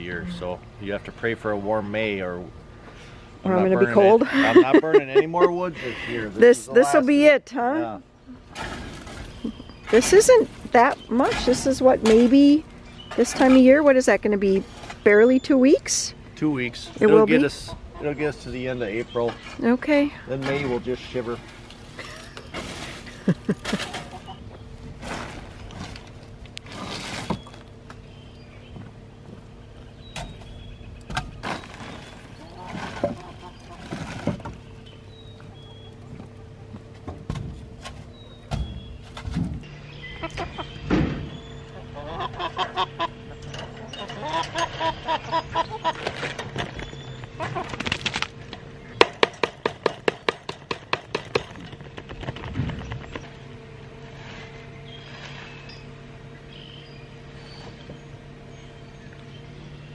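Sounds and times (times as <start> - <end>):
plastic tarp rustling: 8.6 - 11.6, 21.2 - 24.2, 24.9 - 27.6, 31.4 - 34.6
hens clucking: 16.7 - 18.2, 23.0 - 24.6, 32.3 - 34.0, 40.1 - 40.8, 41.6 - 46.3
footsteps on leaf litter: 31.4 - 34.4.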